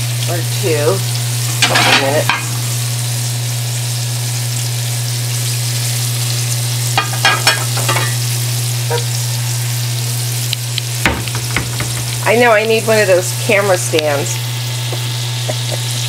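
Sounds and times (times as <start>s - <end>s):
fish frying in oil: 0.0s - 16.0s.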